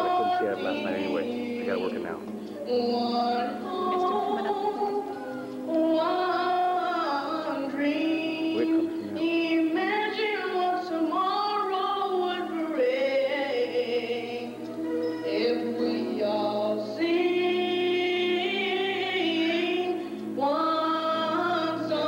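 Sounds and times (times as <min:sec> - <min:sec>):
group of voices singing: 0:00.0 - 0:10.0.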